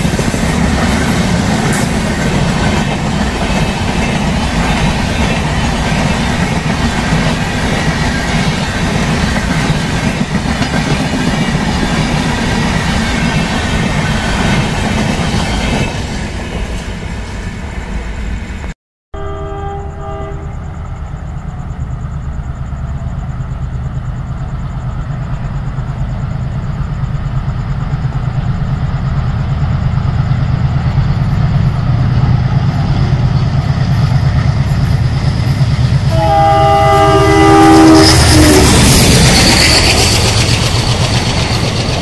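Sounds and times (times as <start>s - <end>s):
locomotive horn blast: 19.2s - 20.8s, 36.1s - 39.0s
loud multi-tone horn blast: 19.2s - 20.8s, 36.1s - 38.9s
locomotive engine rumble: 19.4s - 42.0s.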